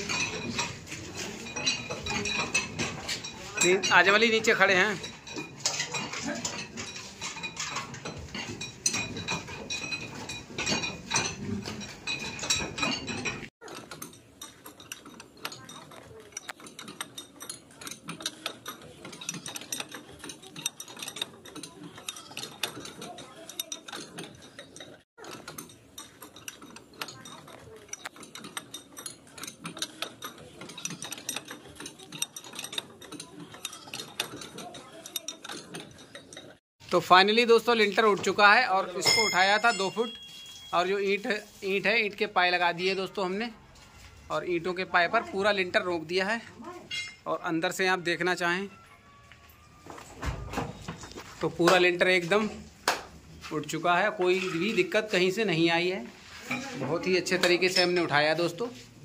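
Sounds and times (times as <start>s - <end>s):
screw jacks clattering metallic clicks: 0.0s - 36.6s.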